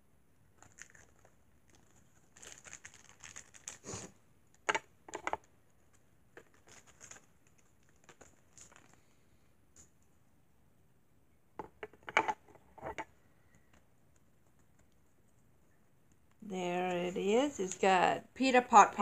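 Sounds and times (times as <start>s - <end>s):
plastic packaging tearing and crinkling: 0.6s - 4.7s, 6.4s - 9.0s.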